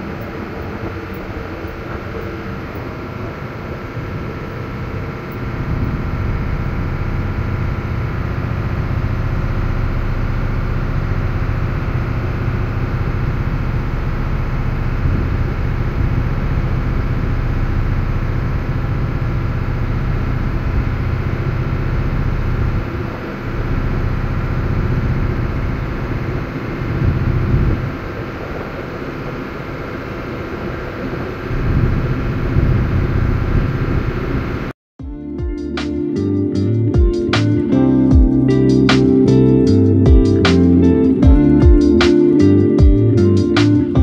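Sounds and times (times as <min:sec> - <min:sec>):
diesel engines droning: 0:00.0 - 0:34.7.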